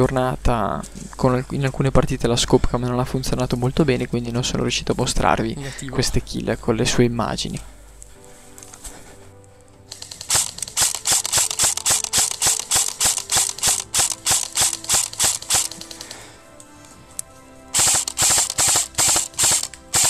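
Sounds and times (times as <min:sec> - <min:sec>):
background music: 0:00.0 - 0:20.0
airsoft rifle firing shots: 0:10.0 - 0:16.0, 0:17.8 - 0:20.0.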